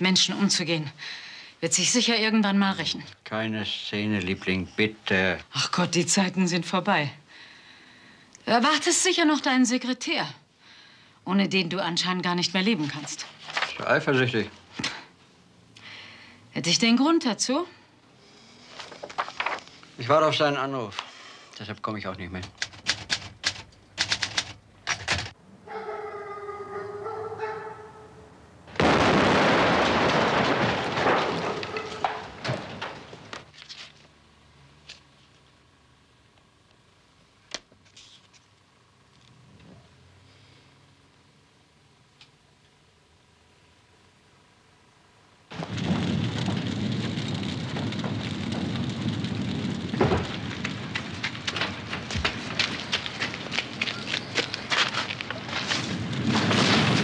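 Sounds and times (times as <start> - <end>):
fire crackling and popping: 0.0 - 9.3, 12.0 - 17.0, 17.7 - 25.4, 28.7 - 39.4, 45.3 - 57.0
gas heater explosion: 28.7 - 33.5, 45.5 - 57.0
sharp cracks: 28.7 - 34.2, 45.5 - 57.0
roar of flames: 28.8 - 33.4, 45.5 - 57.0.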